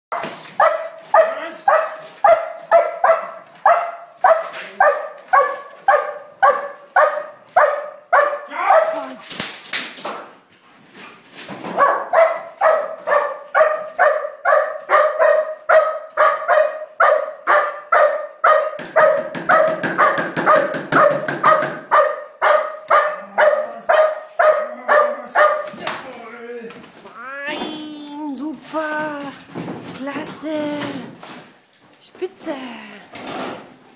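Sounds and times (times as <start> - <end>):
large dog barking: 0.1 - 9.2, 11.7 - 25.8.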